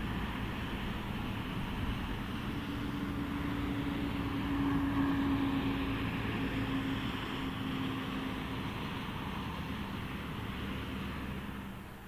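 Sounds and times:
tractor diesel engine working hard: 0.0s - 12.0s.

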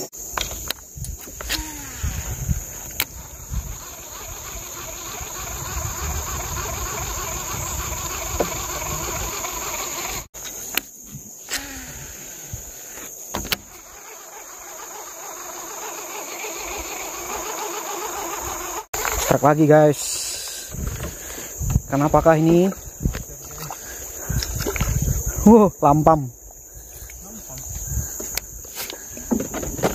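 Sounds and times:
high-pitched insect chorus: 0.0s - 29.9s
sharp clicks: 0.4s - 12.1s.

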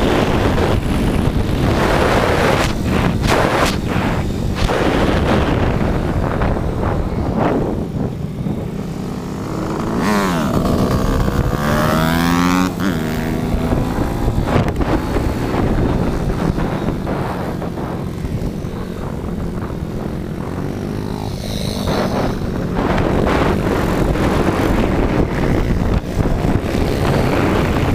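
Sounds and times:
motorbike engine revving: 0.0s - 27.9s.

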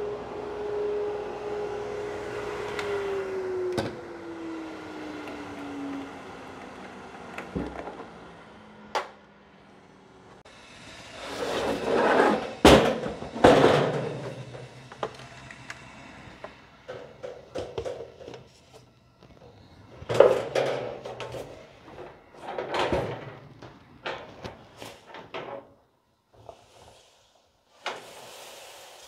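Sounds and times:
metal bin clanking and scraping: 11.3s - 14.8s, 20.0s - 25.8s.

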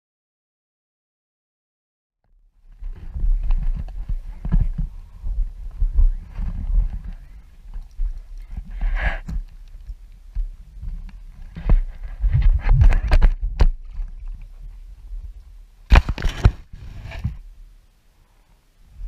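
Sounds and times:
microphone handling rumble: 2.7s - 17.6s.

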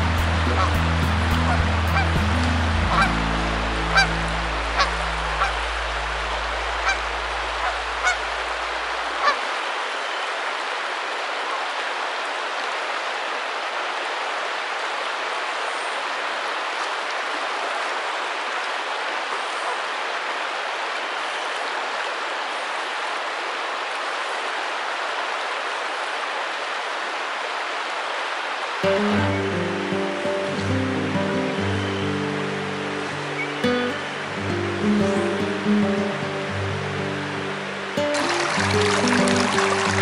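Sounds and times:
low music bed: 0.0s - 9.1s, 29.0s - 40.0s
river water rushing: 0.0s - 40.0s.

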